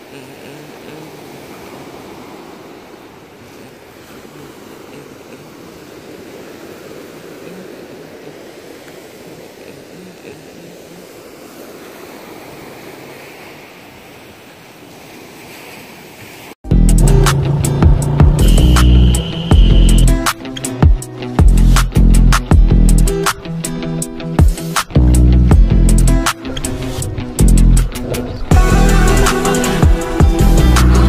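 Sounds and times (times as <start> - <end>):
waves breaking on pebble beach: 0.0 - 16.6.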